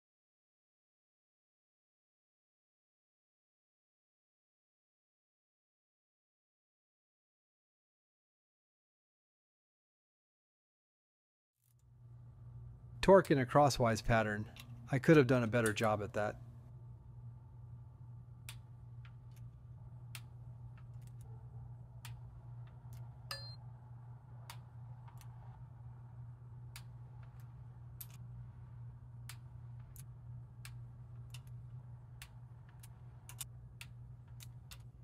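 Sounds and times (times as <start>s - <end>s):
steady low hum: 11.7s - 35.0s
ringing metallic click: 23.3s - 23.6s.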